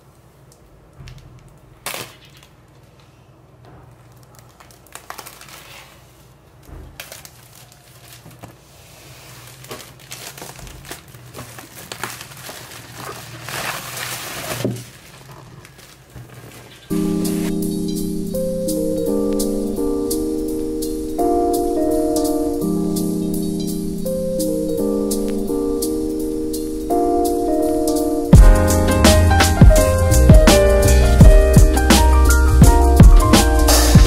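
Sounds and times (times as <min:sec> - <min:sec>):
plastic wrap crinkling: 0:01.1 - 0:17.6.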